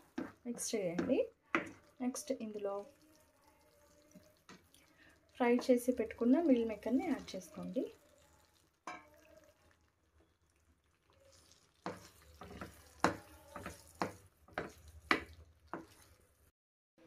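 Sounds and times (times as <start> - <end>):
spatula scraping frying pan: 0.0 - 9.9, 11.3 - 16.5.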